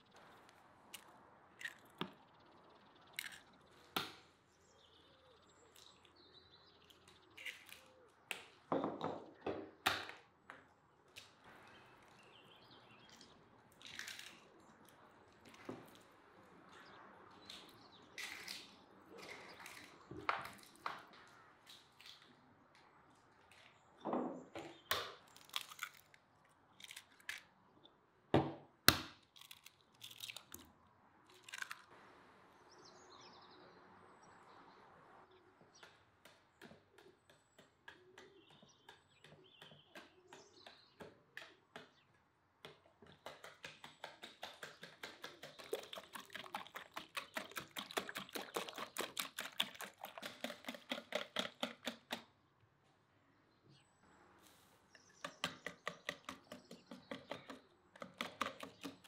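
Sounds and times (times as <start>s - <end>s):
whisk clicking against bowl: 43.2s - 52.2s.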